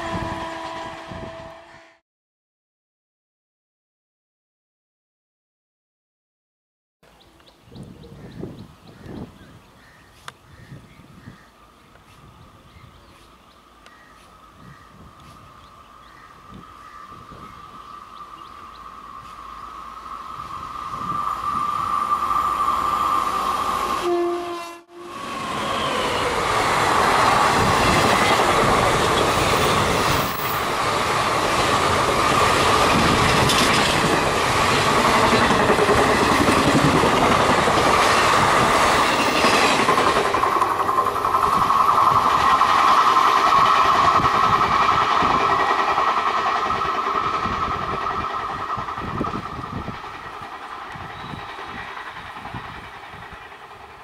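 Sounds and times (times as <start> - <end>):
train horn: 0.0 - 2.0, 23.8 - 26.4
train wheels clattering over rail joints: 26.8 - 54.0.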